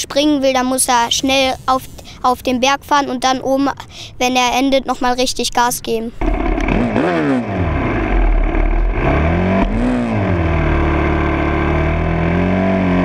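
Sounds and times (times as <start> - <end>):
motocross bike engine revving: 6.2 - 13.0.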